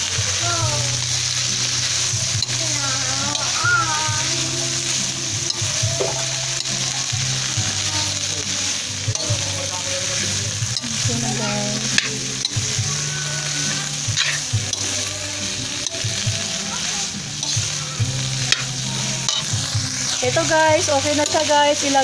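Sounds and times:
vegetables sizzling in a pan: 0:00.0 - 0:22.0
spatula scraping a pan: 0:00.3 - 0:22.0.

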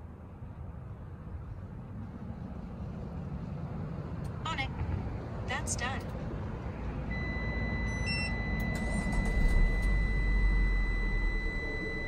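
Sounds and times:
low steady rumble: 0:04.3 - 0:12.0
high electronic beep tone: 0:07.1 - 0:12.0.

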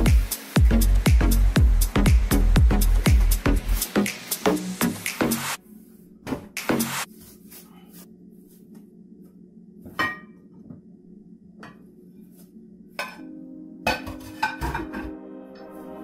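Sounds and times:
dishes clinking and knocking: 0:13.9 - 0:15.1.

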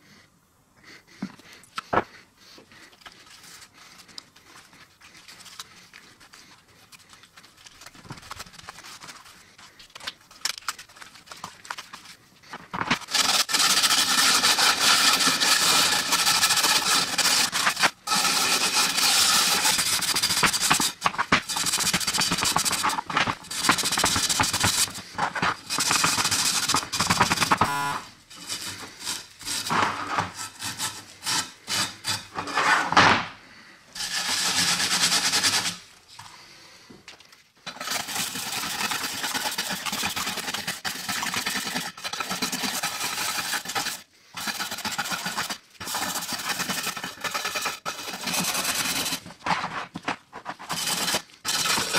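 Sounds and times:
wire brush scrubbing metal: 0:13.0 - 0:27.6, 0:28.3 - 0:32.7, 0:34.0 - 0:35.9, 0:37.7 - 0:49.4, 0:50.4 - 0:51.9.

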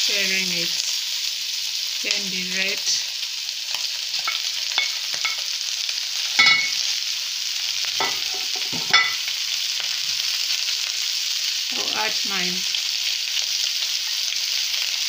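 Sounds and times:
vegetables sizzling in a wok: 0:00.0 - 0:15.0
spatula knocking on wok: 0:06.4 - 0:06.8, 0:08.0 - 0:09.2.

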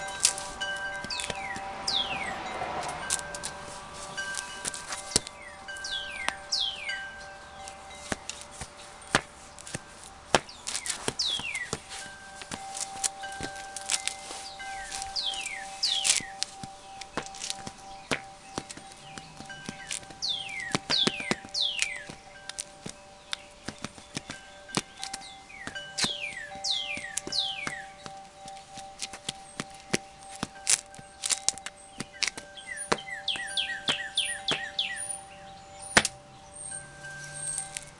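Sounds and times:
birds whistling: 0:00.0 - 0:37.9
shoes tapping on concrete: 0:00.0 - 0:37.9
songbirds chirping: 0:00.0 - 0:37.9
wind chimes ringing: 0:00.0 - 0:37.9
sharp clicks and taps: 0:16.0 - 0:26.2.

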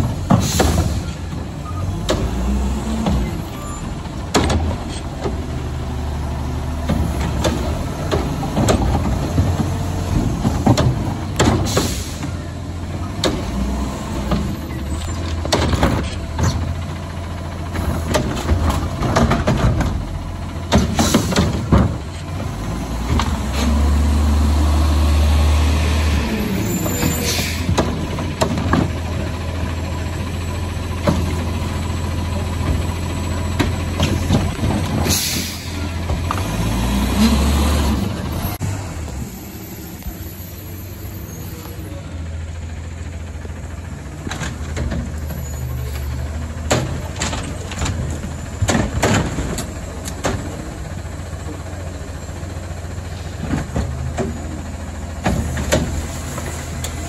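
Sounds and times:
metal clanks of carts: 0:00.0 - 0:24.2, 0:25.6 - 0:57.0
diesel truck engine revving: 0:00.0 - 0:57.0
air brake hiss: 0:11.7 - 0:12.4, 0:27.2 - 0:27.7, 0:35.0 - 0:35.9.

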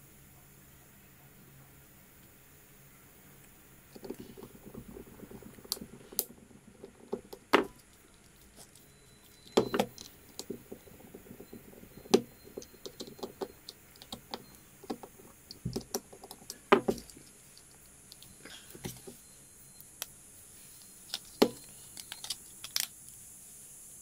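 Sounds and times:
screwdriver clicking on plastic: 0:04.0 - 0:19.2.

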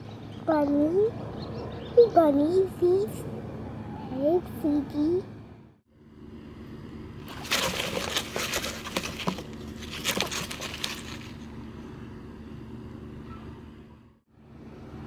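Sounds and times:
steady low hum: 0:00.0 - 0:15.0
nesting material rustling: 0:07.2 - 0:11.5.

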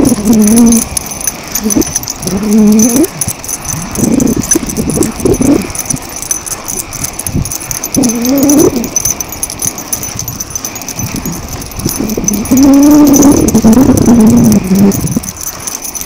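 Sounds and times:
small dog whining: 0:00.0 - 0:06.0, 0:07.8 - 0:09.2, 0:11.9 - 0:15.3.

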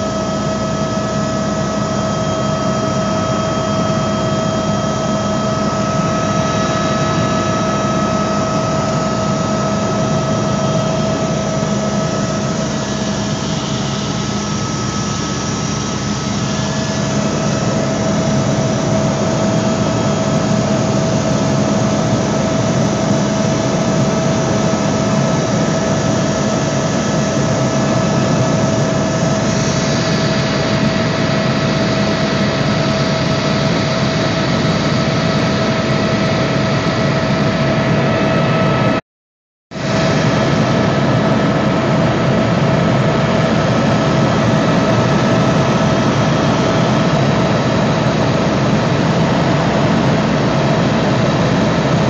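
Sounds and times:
helicopter engine and rotor drone: 0:00.0 - 0:39.0, 0:39.7 - 0:52.0
high whine: 0:00.0 - 0:39.0.

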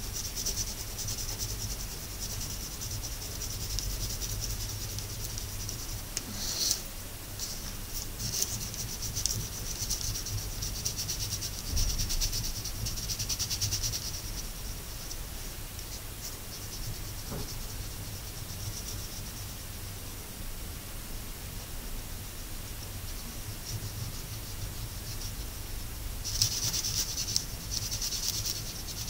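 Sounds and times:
crayon scratching on paper: 0:00.0 - 0:06.8, 0:07.5 - 0:15.2, 0:22.8 - 0:25.5, 0:26.2 - 0:29.0.

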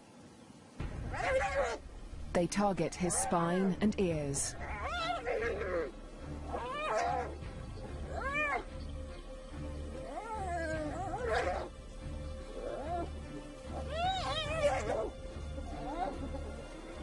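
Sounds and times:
hyenas yelling and squealing: 0:01.1 - 0:01.8, 0:04.6 - 0:08.7, 0:09.8 - 0:11.7, 0:12.5 - 0:17.0.

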